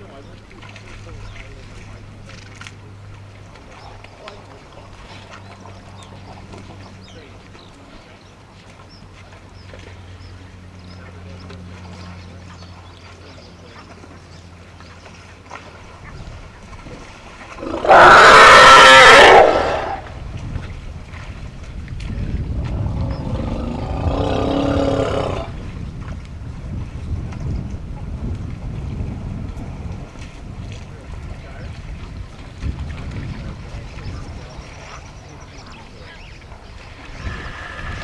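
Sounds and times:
zebra braying: 0:17.6 - 0:20.1.

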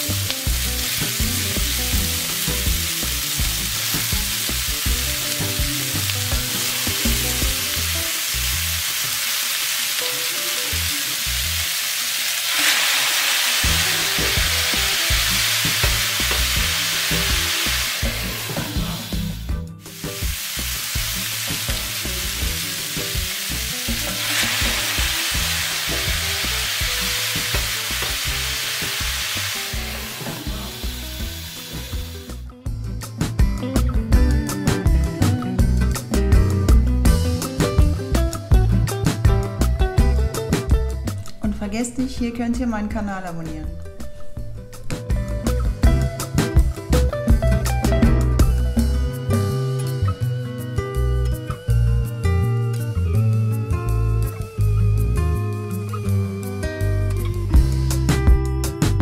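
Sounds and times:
food sizzling in a frying pan: 0:00.0 - 0:32.4.

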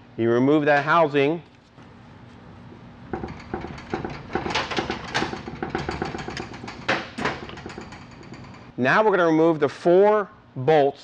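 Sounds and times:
metal clack: 0:03.1 - 0:08.7.

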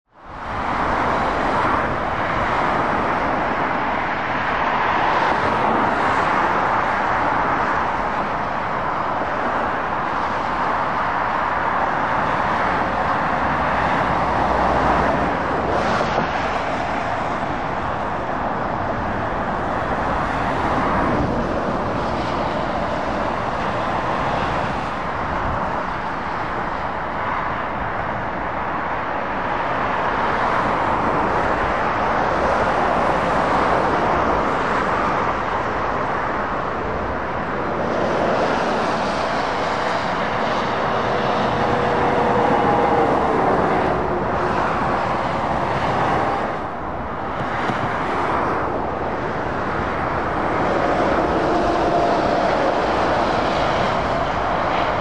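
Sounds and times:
road traffic passing: 0:00.1 - 0:55.0.

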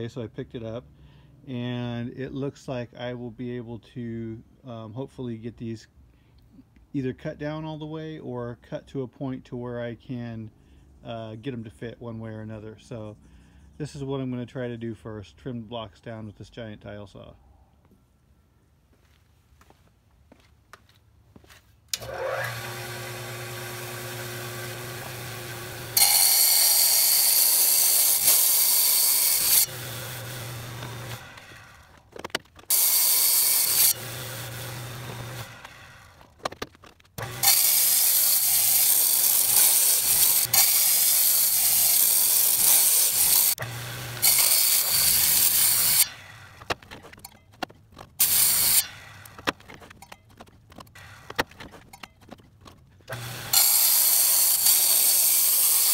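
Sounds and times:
tile saw motor humming: 0:21.9 - 0:32.0, 0:32.6 - 0:36.4, 0:37.2 - 0:47.0, 0:48.2 - 0:49.7, 0:53.1 - 0:55.9
saw blade grinding concrete: 0:22.0 - 0:55.9.

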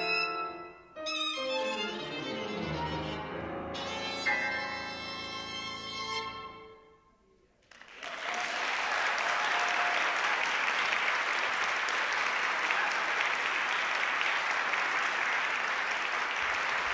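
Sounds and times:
audience applauding: 0:07.6 - 0:16.9.

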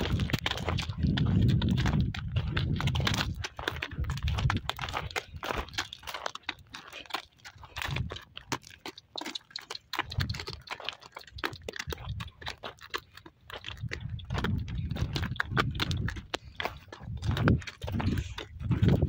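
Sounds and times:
low rumbles: 0:00.0 - 0:05.8, 0:13.7 - 0:19.0
donkey hooves on stony ground: 0:00.0 - 0:19.0.

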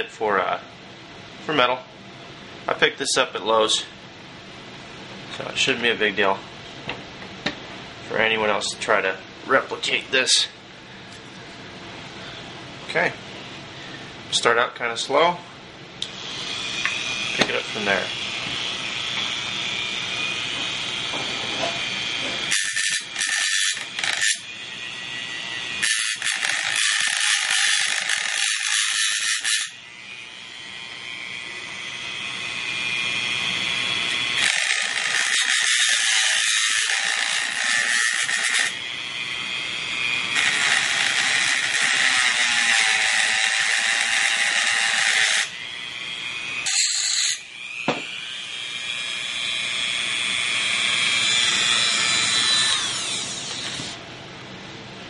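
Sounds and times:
cut-off wheel grinding steel: 0:16.0 - 0:54.0
rotary tool motor whine: 0:16.0 - 0:54.0.

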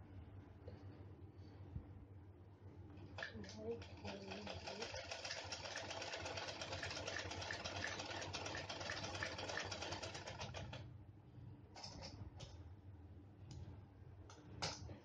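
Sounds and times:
sewing machine clattering: 0:03.1 - 0:10.8.

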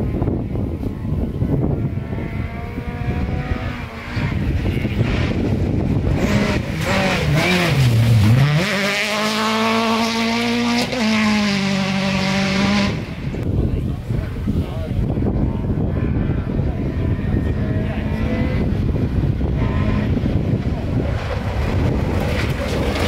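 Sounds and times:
rally car engine revving: 0:00.9 - 0:13.5, 0:14.3 - 0:23.0
tyres on gravel: 0:21.1 - 0:23.0.

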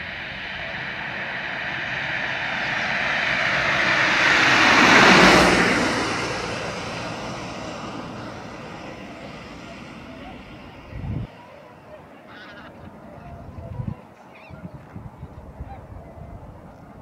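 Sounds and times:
engine passing by: 0:00.0 - 0:12.6.

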